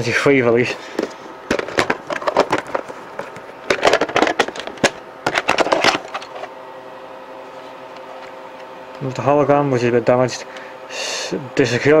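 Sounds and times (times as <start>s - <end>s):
plastic case clicks and crackles: 1.5s - 6.4s.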